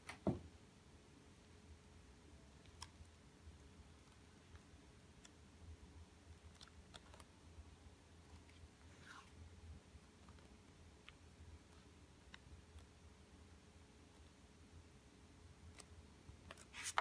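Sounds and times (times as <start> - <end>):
paper pages rustling: 16.5 - 17.0.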